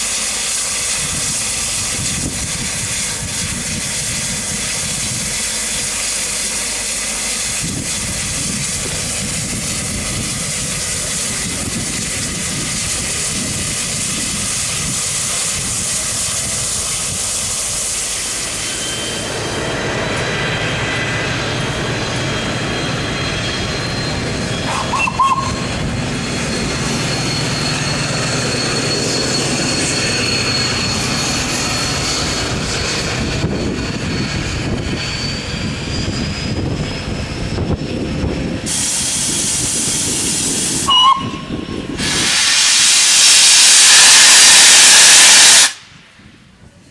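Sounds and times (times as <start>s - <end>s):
steam hissing: 0.0s - 19.4s, 38.6s - 46.0s
locomotive low rumble: 0.0s - 42.4s.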